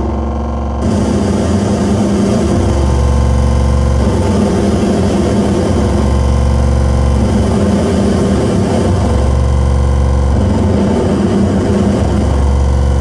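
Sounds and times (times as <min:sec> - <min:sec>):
electronic noise drone: 0:00.0 - 0:13.0
layered buzzing tones: 0:00.0 - 0:13.0.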